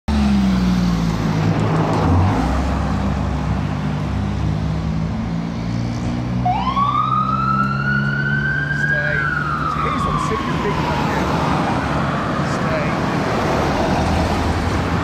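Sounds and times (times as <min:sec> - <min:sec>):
siren winding up into wail: 0:06.4 - 0:11.3.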